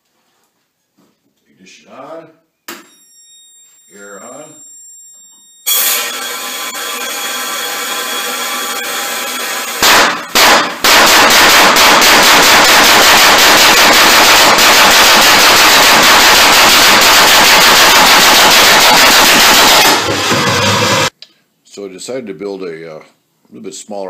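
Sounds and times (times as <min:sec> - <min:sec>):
loud engine detonations: 0:05.7 - 0:21.1.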